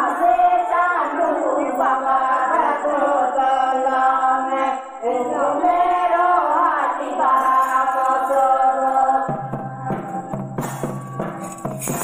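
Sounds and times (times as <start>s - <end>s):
women singing together: 0.0s - 12.0s
instrumental accompaniment: 9.3s - 12.0s.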